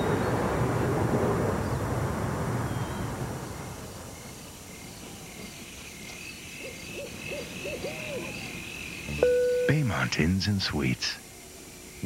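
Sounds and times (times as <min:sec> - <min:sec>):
owl hooting: 0:06.5 - 0:10.9
faint high trill: 0:09.1 - 0:10.1.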